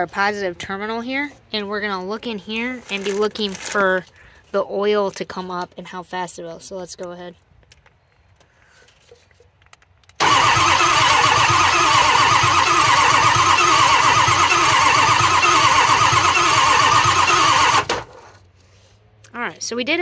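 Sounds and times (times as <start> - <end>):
starter motor cranking engine: 10.2 - 18.4.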